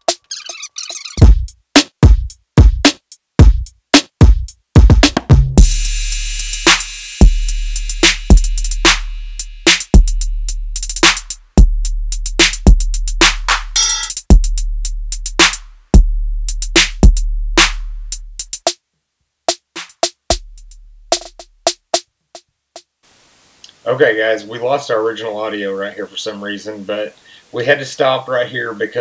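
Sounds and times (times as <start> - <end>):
drum machine beat: 1.2 - 18.8, 19.5 - 22.9.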